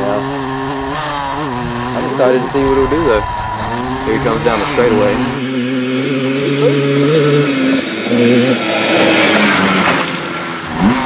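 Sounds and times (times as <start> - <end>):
two-stroke engine running hard: 0.0 - 11.0
rushing noise: 2.4 - 5.6.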